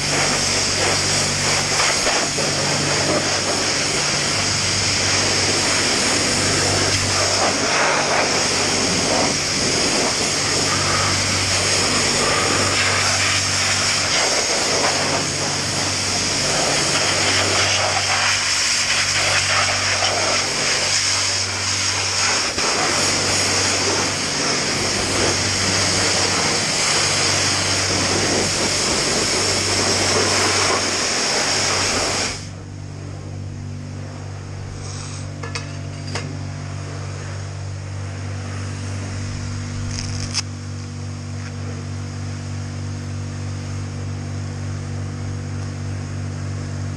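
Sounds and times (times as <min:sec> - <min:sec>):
pressure washer water jet hissing: 0:00.0 - 0:32.6
low hum: 0:00.0 - 0:46.9.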